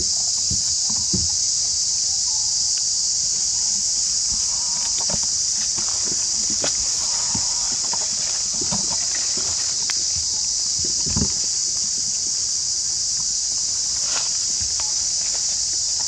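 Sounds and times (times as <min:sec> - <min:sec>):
insects chirring: 0:00.0 - 0:16.0
footfalls in dry leaves: 0:04.4 - 0:11.8, 0:13.7 - 0:15.9.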